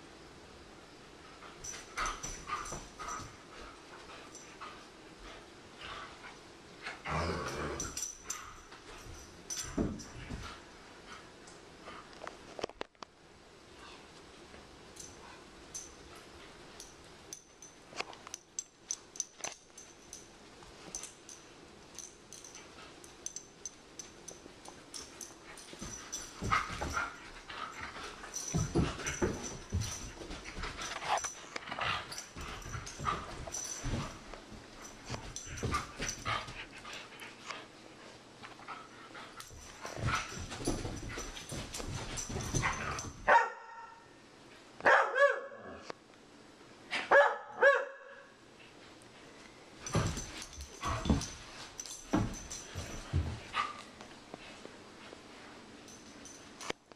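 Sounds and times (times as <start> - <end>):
dogs scuffling on carpet: 24.9 - 37.7, 38.5 - 43.3, 49.8 - 55.2
dog barking: 43.3 - 44.1, 44.8 - 45.6, 47.1 - 48.3.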